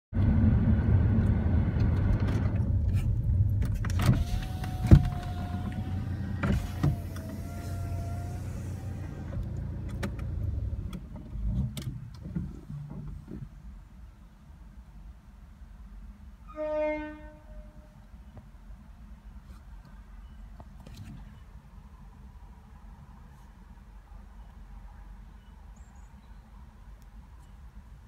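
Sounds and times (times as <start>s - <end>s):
car engine and road rumble: 0.1s - 28.0s
faint steady tone: 19.8s - 28.0s.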